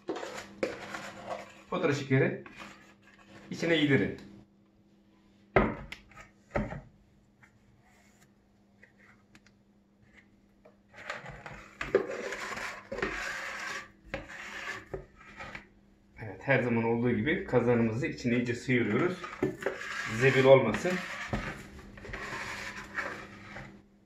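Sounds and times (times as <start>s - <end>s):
utensil scraping plastic: 0.0s - 3.6s, 10.9s - 15.7s, 18.6s - 23.8s.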